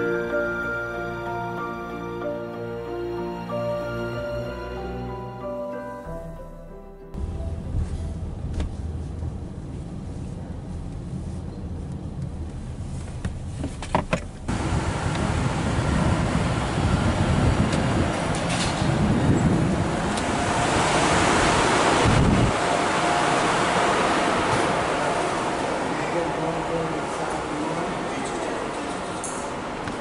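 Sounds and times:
traffic noise: 0:00.0 - 0:30.0
car cabin hum: 0:06.2 - 0:15.3.

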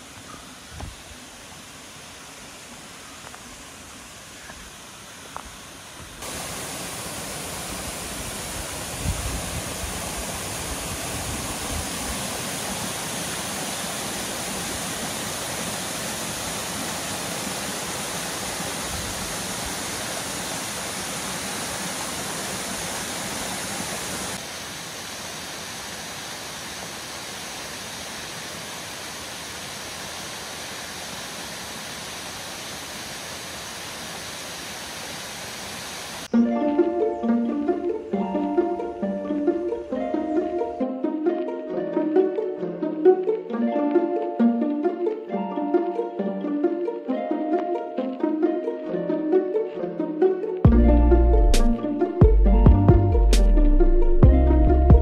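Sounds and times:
waterfall rushing onto rocks: 0:00.0 - 0:36.3.

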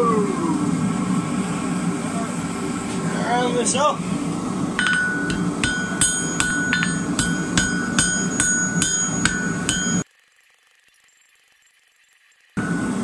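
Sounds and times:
low noise of forge: 0:00.2 - 0:10.1, 0:12.6 - 0:13.0
hammer striking steel on anvil: 0:04.8 - 0:10.0.

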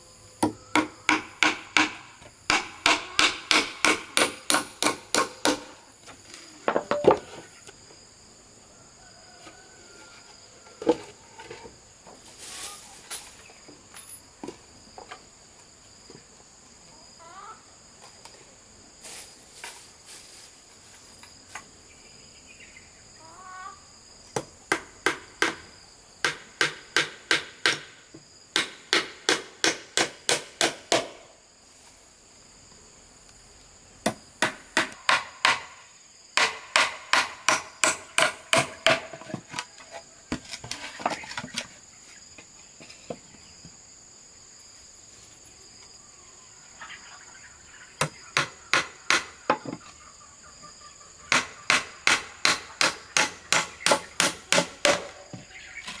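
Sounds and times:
insects trilling: 0:00.0 - 0:56.0
hammer driving nails into wood: 0:00.7 - 0:05.7, 0:26.2 - 0:27.9, 0:28.6 - 0:31.2, 0:34.0 - 0:35.7, 0:36.4 - 0:39.1, 0:51.3 - 0:55.1.

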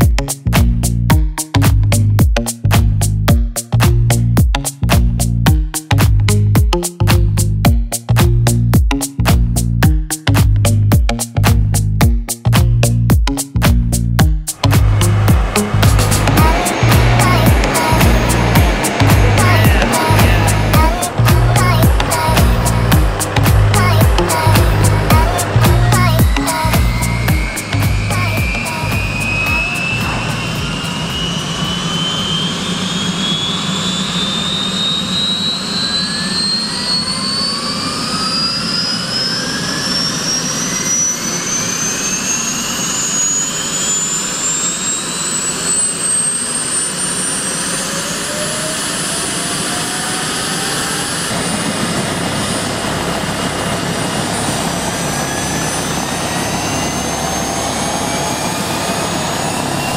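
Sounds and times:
low engine rumble: 0:00.0 - 0:34.2, 0:49.4 - 0:59.9
helicopter turbine whine: 0:14.5 - 0:59.9.

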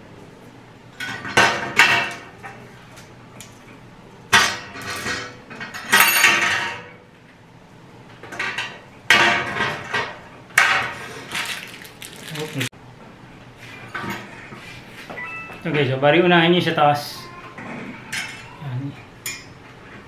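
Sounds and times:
metal trays clattering on glass: 0:04.3 - 0:07.0, 0:08.3 - 0:11.6.

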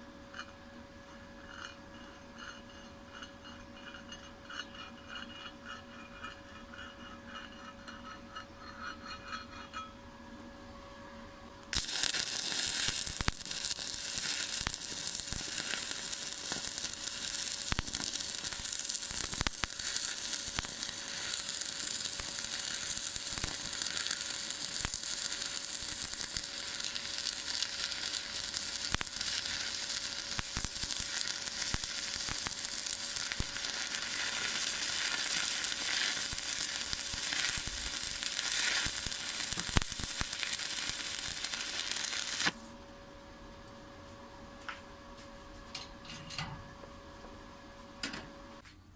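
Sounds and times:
spatter pops: 0:11.7 - 0:42.6
arc welding crackle: 0:11.7 - 0:42.7.

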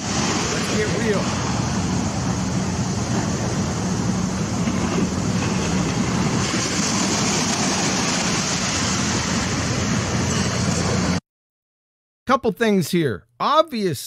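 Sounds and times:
small waves washing onto beach: 0:00.0 - 0:11.2.

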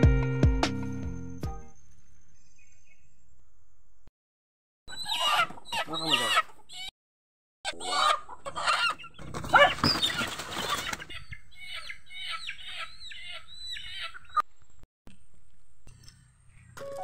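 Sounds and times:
chickens calling: 0:04.9 - 0:06.9, 0:07.7 - 0:14.6, 0:16.5 - 0:17.0
wings flapping: 0:09.2 - 0:11.2.

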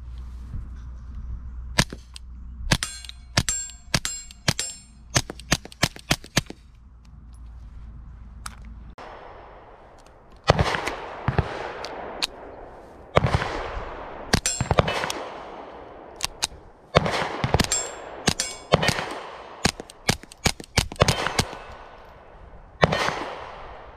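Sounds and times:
suppressed pistol shots: 0:09.0 - 0:22.2, 0:22.8 - 0:23.9.

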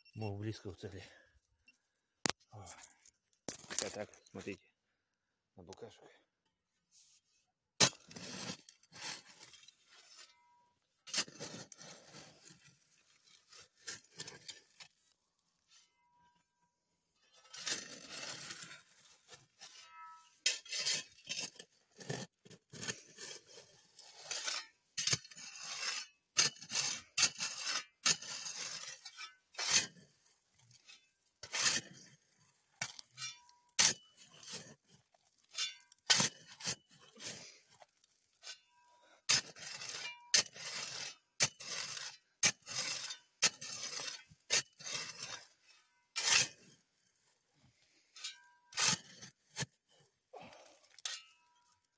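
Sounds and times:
shovel scraping sand: 0:07.8 - 0:10.4, 0:11.1 - 0:15.0, 0:17.4 - 0:46.9, 0:47.8 - 0:50.1.

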